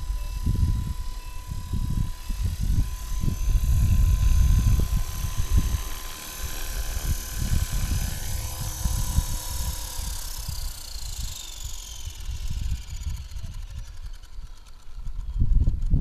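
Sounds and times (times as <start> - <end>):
rc helicopter motor whine: 0.0 - 16.0.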